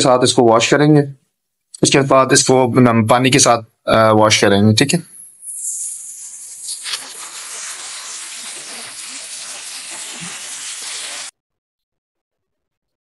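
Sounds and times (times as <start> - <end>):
spray gun hissing: 5.5 - 11.3.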